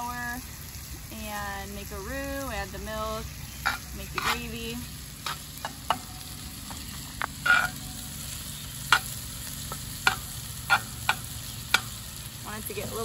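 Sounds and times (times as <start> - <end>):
sausage sizzling in a skillet: 0.0 - 13.0
metal spatula scraping a pan: 3.5 - 12.0.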